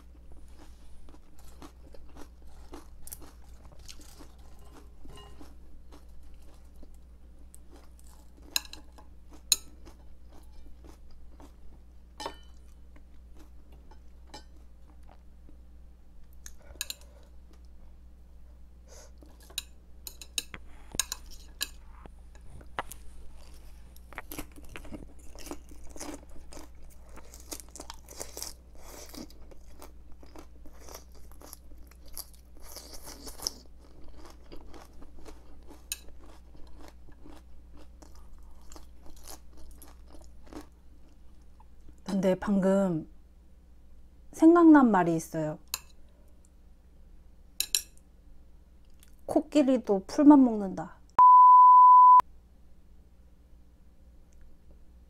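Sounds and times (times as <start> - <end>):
chewing crisp cabbage: 0.0 - 15.6, 20.8 - 42.1, 48.8 - 49.3.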